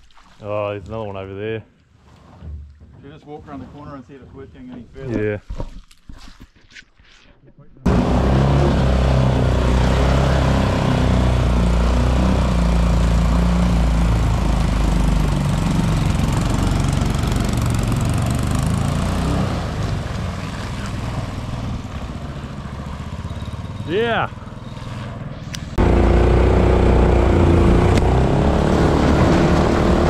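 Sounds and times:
rush of prop wash: 7.9 - 22.7
boat motor running: 7.9 - 30.0.

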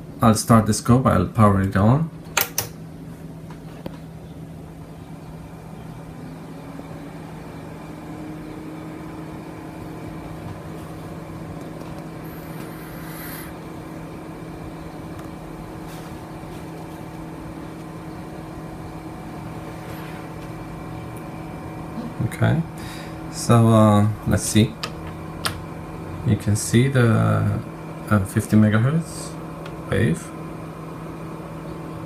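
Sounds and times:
cooling fan whirring: 0.0 - 32.0
electronic hum: 0.0 - 32.0.

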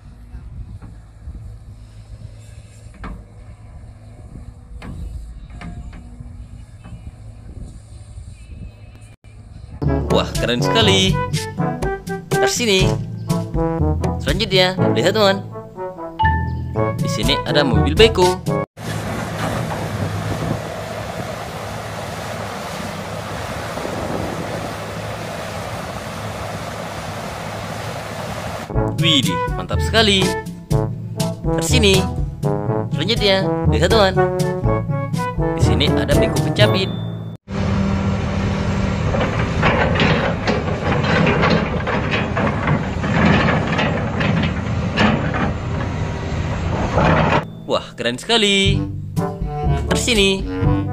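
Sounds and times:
wind noise on microphone: 0.0 - 9.8, 18.8 - 28.7
metallic rattling and clanking: 18.8 - 29.3, 36.2 - 47.8
excavator diesel engine running: 18.8 - 30.9, 35.6 - 47.7.

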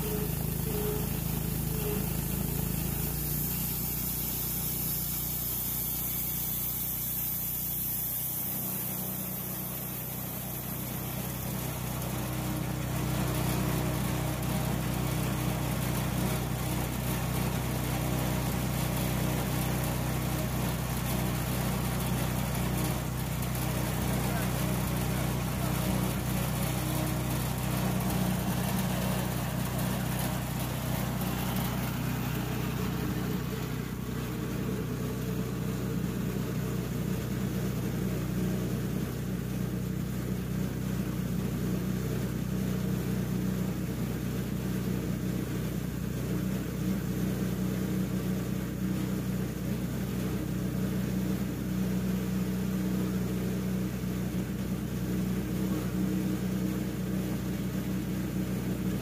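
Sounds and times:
gasoline engine running steadily: 0.0 - 59.0.

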